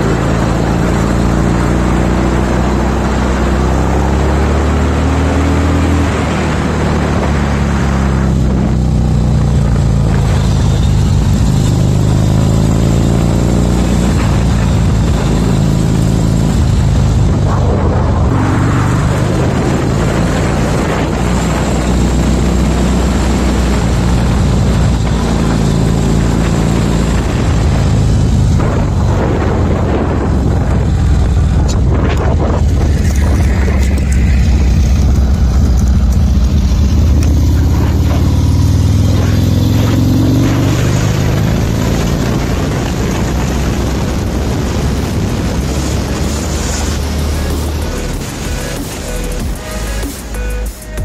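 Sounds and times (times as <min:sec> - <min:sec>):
motorcycle engine revving: 0:00.0 - 0:51.0.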